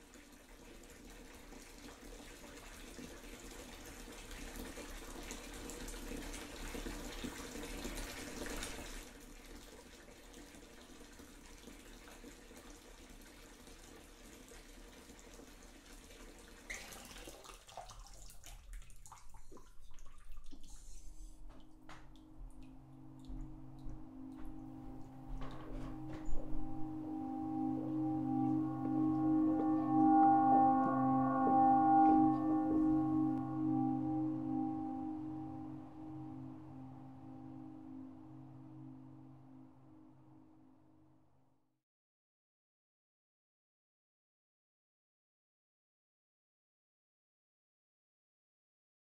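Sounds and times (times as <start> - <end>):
water running from tap: 0.0 - 22.1
low steady tone: 21.0 - 41.3.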